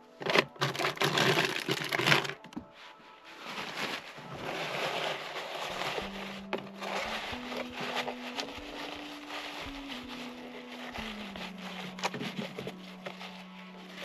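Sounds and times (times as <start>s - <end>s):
plastic wrapping rustling: 0.0s - 14.0s
soft background music: 0.0s - 14.0s
tubs and bottles knocking: 0.2s - 2.7s.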